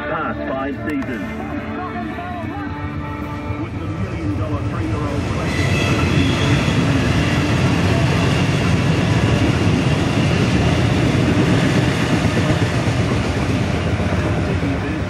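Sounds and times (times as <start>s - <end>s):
train wheels rumbling on rails: 3.0s - 15.0s.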